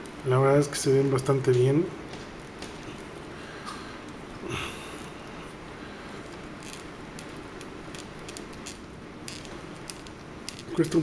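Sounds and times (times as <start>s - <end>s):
plastic parts clicking and rubbing: 6.2s - 10.8s.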